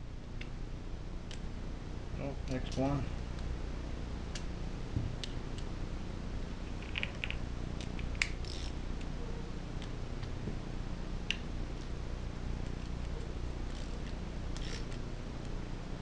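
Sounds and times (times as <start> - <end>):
ratchet clicks: 7.8 - 8.8, 14.6 - 15.0.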